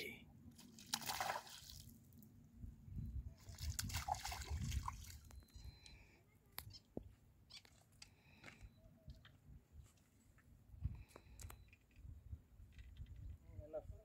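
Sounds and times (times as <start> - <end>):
fish splashing in water: 0.8 - 1.8.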